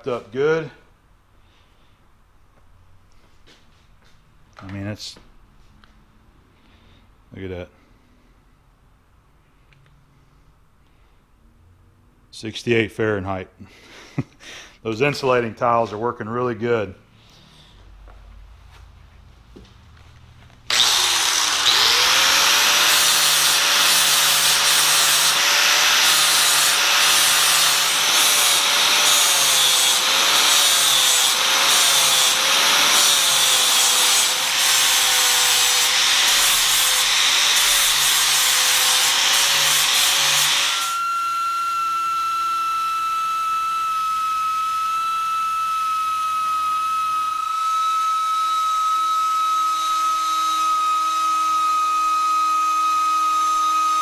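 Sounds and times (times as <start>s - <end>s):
angle grinder grinding metal: 20.7s - 54.0s.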